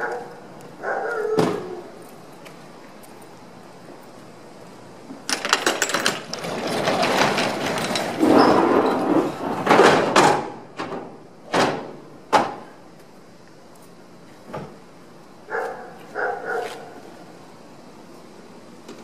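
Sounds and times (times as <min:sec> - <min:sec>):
roll-up door rattling: 0:05.3 - 0:11.8
metal ramp sliding: 0:05.6 - 0:11.1.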